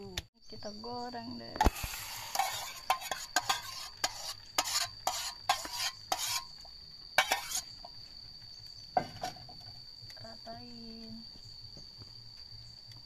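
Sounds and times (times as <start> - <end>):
spoon scraping metal pot: 1.6 - 7.8
batter sizzling in oil: 1.6 - 8.9.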